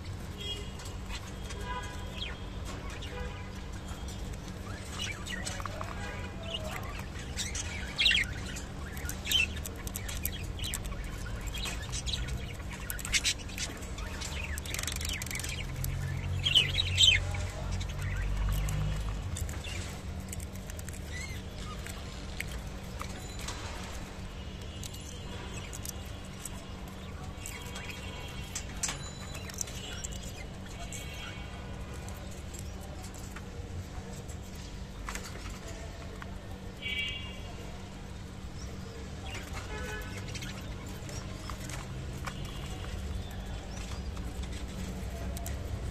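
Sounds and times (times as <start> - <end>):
budgerigars chirping: 4.1 - 22.6.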